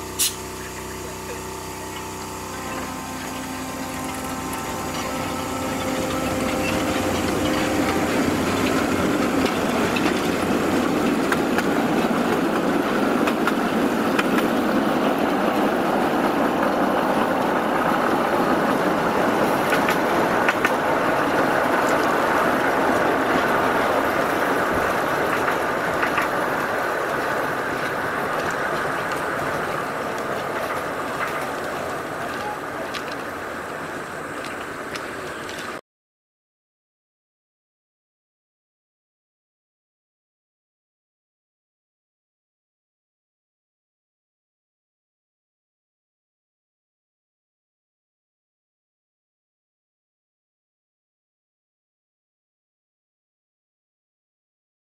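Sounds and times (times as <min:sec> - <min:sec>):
wheels rumbling on track: 0:00.0 - 0:35.8.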